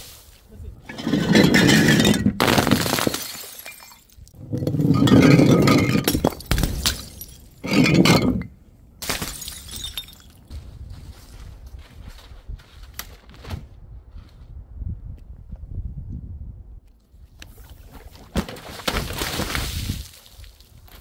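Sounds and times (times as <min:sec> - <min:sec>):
glass shards clinking: 0:00.8 - 0:08.5
glass bottles smashing: 0:00.8 - 0:10.4.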